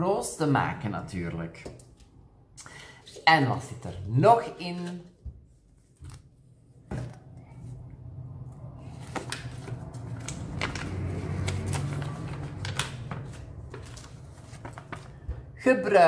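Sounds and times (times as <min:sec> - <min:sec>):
paper rustling and crackling: 0:04.8 - 0:07.6, 0:08.8 - 0:15.5.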